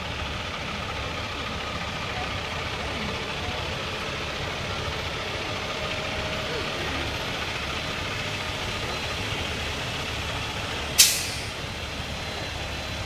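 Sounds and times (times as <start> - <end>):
truck engine rumbling: 0.0 - 13.0
air brake hiss: 11.0 - 11.6.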